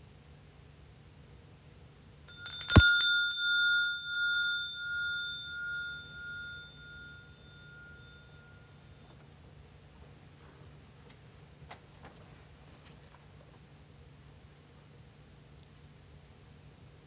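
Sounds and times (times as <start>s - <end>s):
metal vessel clinking and knocking: 2.3s - 6.6s
bell-like ringing tone: 2.3s - 9.1s.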